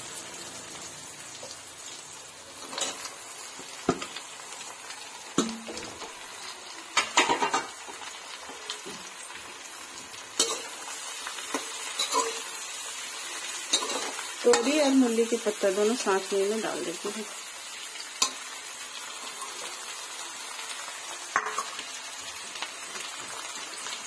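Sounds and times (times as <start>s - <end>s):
hot oil sizzling: 0.0s - 24.0s
metal spoon scraping a pan: 2.5s - 3.1s, 10.3s - 15.6s, 18.2s - 19.9s, 21.3s - 21.8s.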